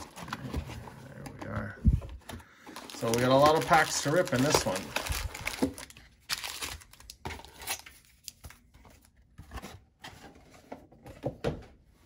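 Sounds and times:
foil packs crinkling: 2.6s - 8.0s.

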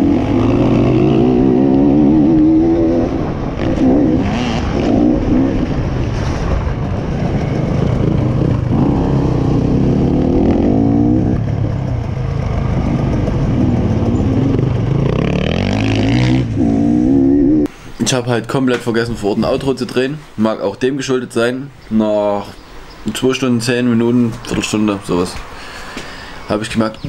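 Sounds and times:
dirt bike engine revving: 0.0s - 6.2s, 7.2s - 17.7s.

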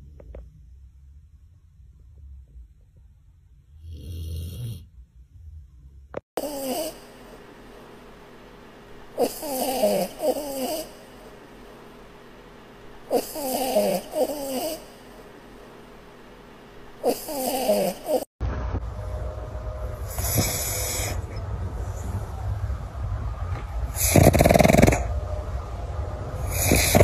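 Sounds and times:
low rumbling dog snore: 3.7s - 5.6s, 9.2s - 10.9s, 13.1s - 14.9s, 17.0s - 18.3s, 20.0s - 21.4s, 23.9s - 25.1s, 26.4s - 27.0s
dog wheezy whistling snores: 3.8s - 4.9s, 9.2s - 10.9s, 20.1s - 21.3s, 23.9s - 25.1s, 26.4s - 27.0s.

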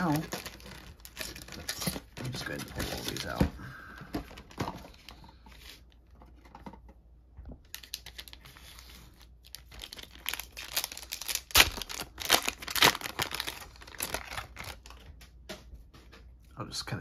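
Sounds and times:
foil pack crinkling and tearing: 0.0s - 3.4s, 7.6s - 15.1s.

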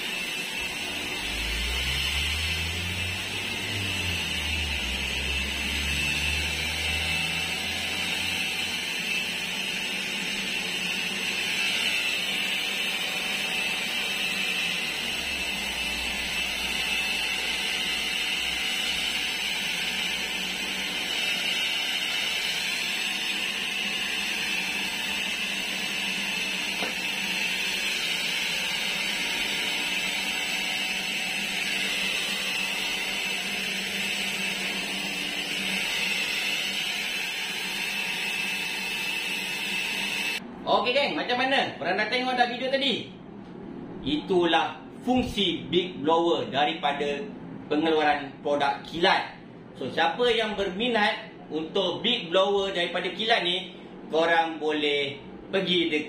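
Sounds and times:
electric leaf blower whining: 0.0s - 40.4s.

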